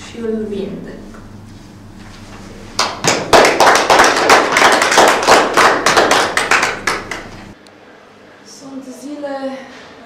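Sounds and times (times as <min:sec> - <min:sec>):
small group applauding: 0:02.8 - 0:07.6.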